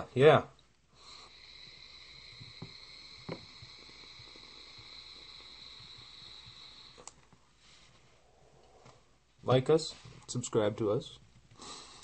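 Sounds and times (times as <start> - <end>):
electronic cigarette hissing: 1.0 - 7.4
e-liquid crackling: 1.3 - 7.4.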